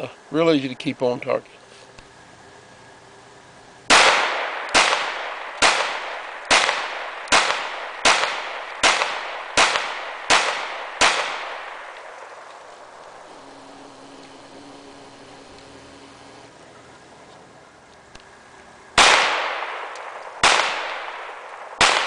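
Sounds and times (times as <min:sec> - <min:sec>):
pistol shots echoing: 0:03.9 - 0:15.0, 0:19.0 - 0:22.0.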